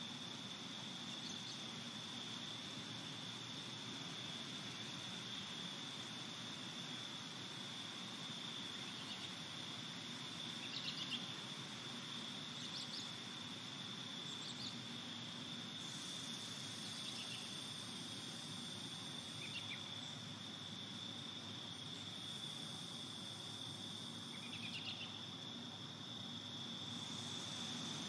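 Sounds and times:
high-pitched insect trill: 0.0 - 28.0
low outdoor hiss: 0.0 - 28.0.

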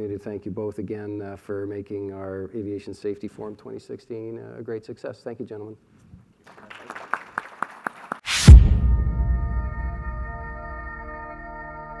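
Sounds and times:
held music chord ringing: 8.9 - 12.0.

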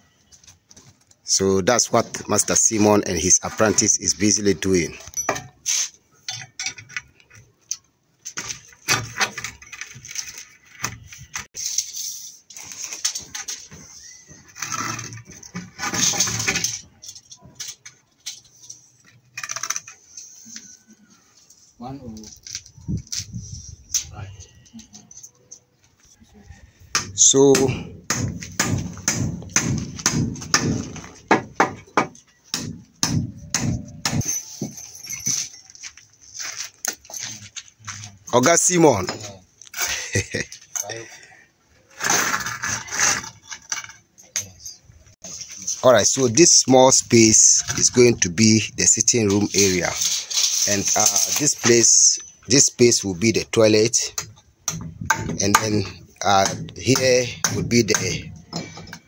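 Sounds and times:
hammer knocking on boards: 27.0 - 34.2.

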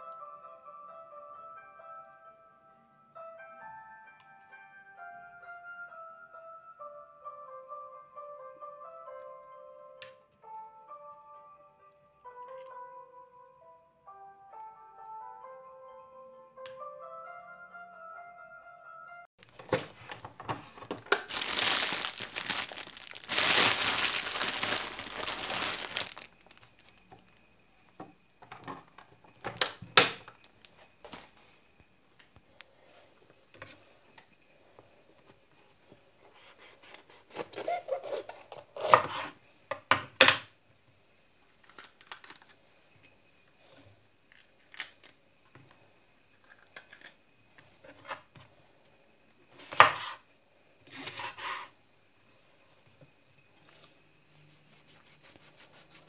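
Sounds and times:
crinkling and tearing: 21.0 - 27.0, 41.6 - 42.6.

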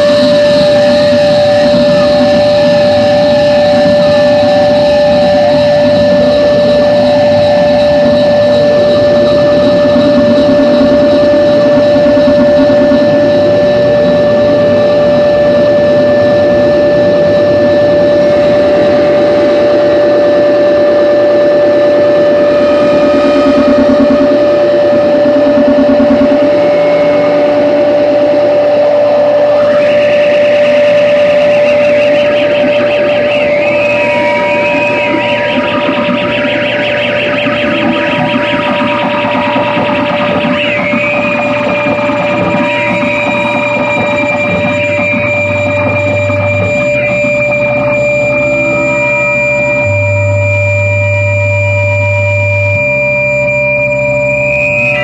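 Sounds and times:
distorted harsh noise: 0.0 - 55.0
higher wobbling tone: 0.0 - 55.0
steady electronic tone: 0.0 - 55.0
wavering electronic tone: 0.0 - 55.0.

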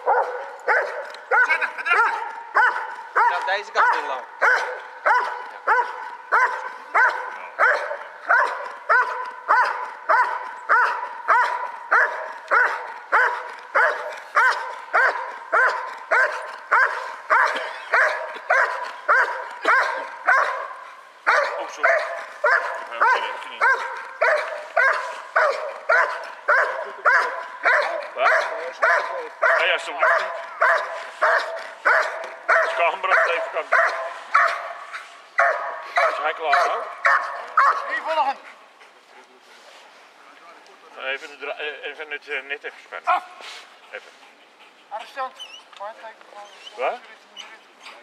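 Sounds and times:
dog barking rhythmically: 0.0 - 34.8, 35.4 - 38.4.

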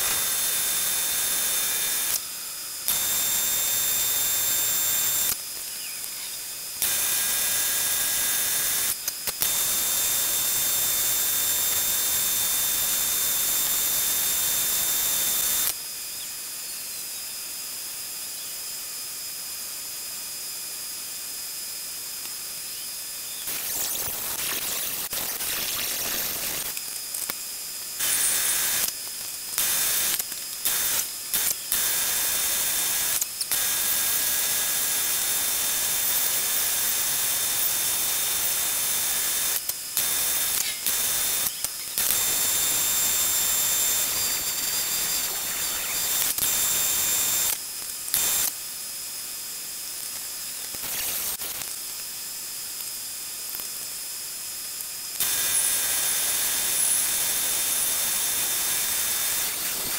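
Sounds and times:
angle grinder cutting steel: 0.0 - 15.7, 29.6 - 48.5, 55.2 - 59.9
machining noise: 40.0 - 47.3.

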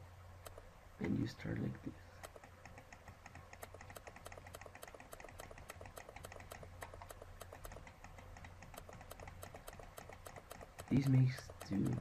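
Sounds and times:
low electrical hum: 0.0 - 12.0
rapid faint clicking: 0.4 - 1.2, 2.2 - 12.0.

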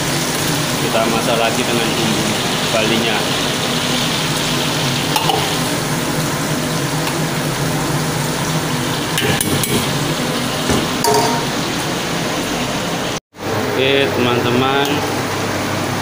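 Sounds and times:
oil sizzling: 0.0 - 13.2
ladle knocking on wok: 10.7 - 11.6.

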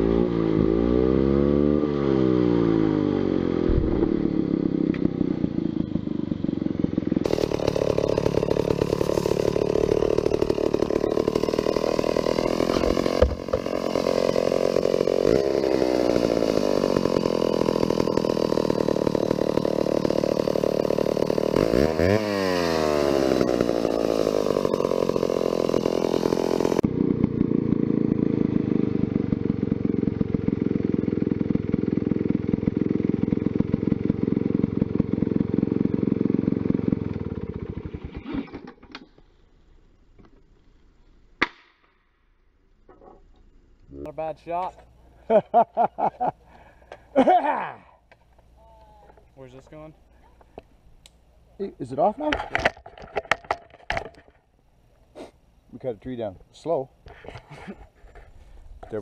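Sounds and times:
chainsaw engine running: 0.0 - 38.9, 43.9 - 50.7.

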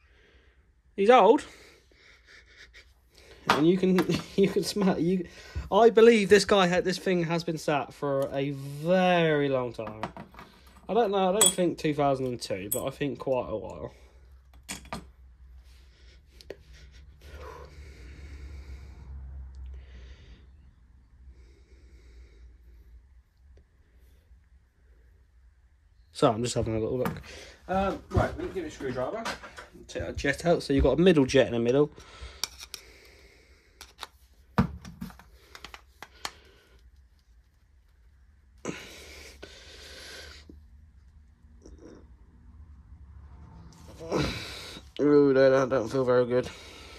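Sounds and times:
quiet breathing: 15.4 - 26.0, 31.9 - 34.0, 35.2 - 37.3, 38.6 - 40.8, 46.4 - 46.9.

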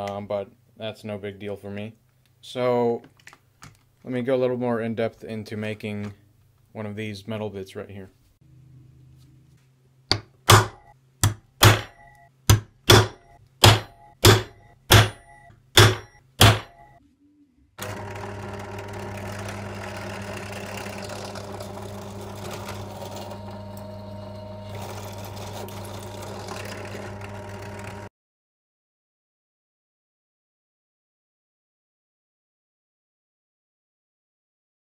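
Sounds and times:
sharp ringing knocks: 12.9 - 17.0
drill press motor humming: 17.8 - 28.1.

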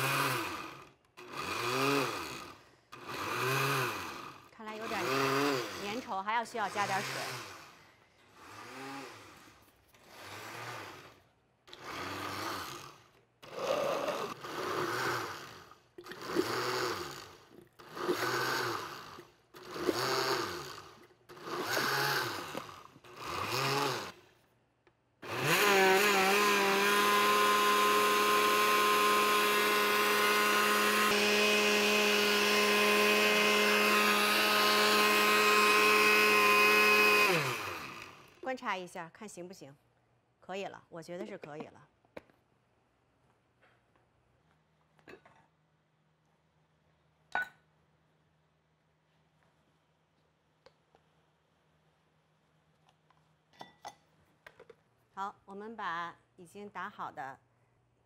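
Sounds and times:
blender running: 0.0 - 24.2, 25.2 - 38.4.

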